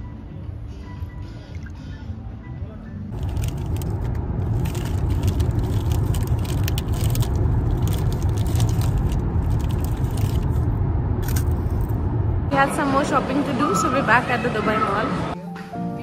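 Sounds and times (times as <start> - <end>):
plastic packet crackling: 3.1 - 10.6
car interior rumble: 3.1 - 12.6.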